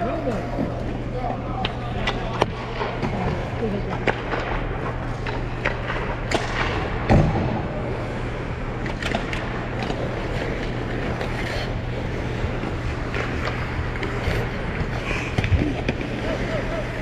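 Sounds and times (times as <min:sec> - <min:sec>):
ice skate blades scraping: 0:07.9 - 0:17.0.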